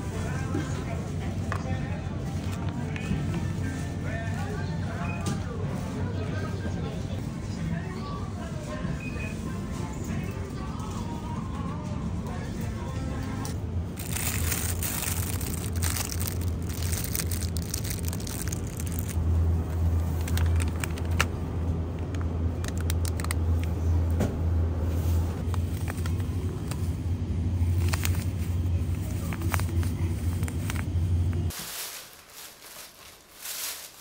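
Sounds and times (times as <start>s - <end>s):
steady low hum: 9.5s - 34.0s
plastic packaging crinkling: 14.0s - 21.4s, 22.6s - 23.5s, 27.6s - 34.0s.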